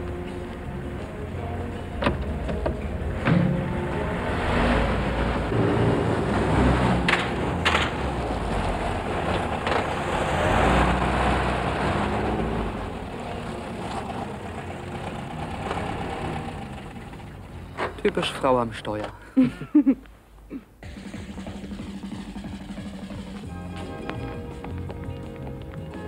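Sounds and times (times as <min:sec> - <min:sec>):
car engine running: 0:00.0 - 0:18.4
road and tyre noise: 0:00.0 - 0:19.2, 0:21.6 - 0:26.0.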